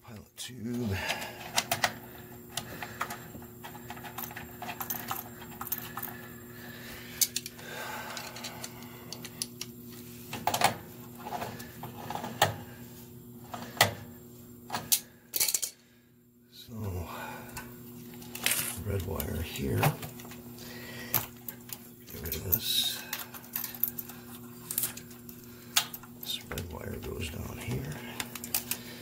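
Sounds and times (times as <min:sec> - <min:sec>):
steady low hum: 0:00.0 - 0:29.0
small metal parts clinking: 0:03.0 - 0:06.3, 0:07.2 - 0:09.4, 0:14.9 - 0:15.8, 0:21.1 - 0:26.6, 0:27.6 - 0:28.9.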